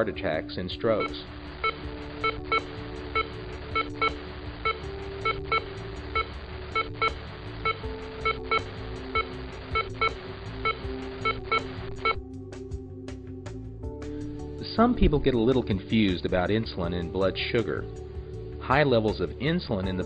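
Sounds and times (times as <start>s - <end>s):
held electronic chords: 0.9s - 13.1s
beat of clicks and blips: 1.0s - 12.2s.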